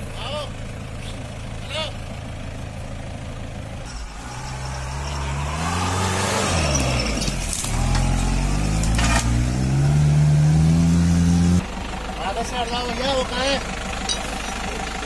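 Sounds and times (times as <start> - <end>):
jeep engine revving: 3.2 - 15.0.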